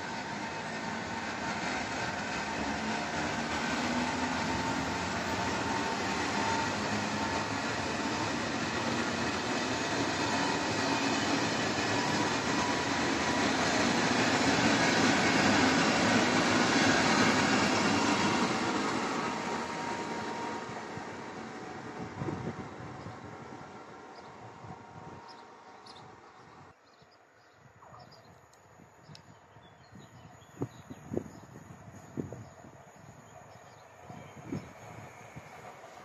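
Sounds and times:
train wheels rumbling on rail: 0.0s - 26.4s.

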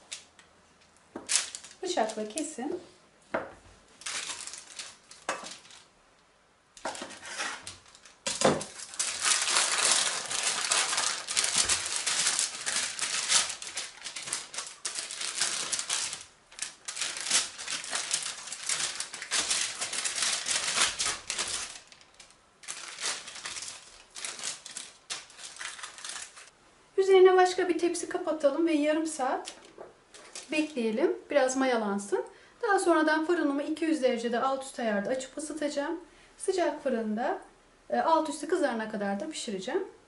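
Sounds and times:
baking paper crinkling: 1.2s - 2.6s, 3.9s - 5.9s, 6.8s - 26.5s, 29.3s - 30.8s.

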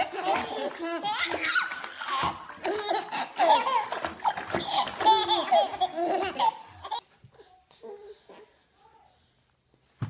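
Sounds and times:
babies laughing: 0.0s - 7.0s.

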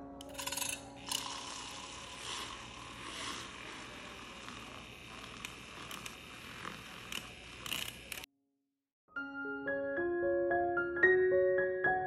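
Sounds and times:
milk frother whirring: 0.2s - 8.3s.

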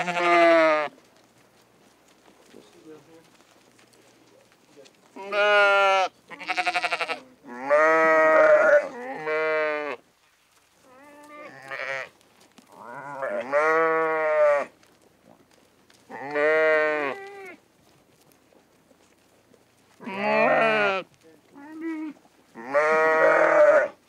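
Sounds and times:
goats bleating: 0.0s - 0.9s, 5.2s - 10.0s, 10.9s - 12.1s, 12.7s - 14.7s, 16.1s - 17.6s, 20.0s - 24.0s.

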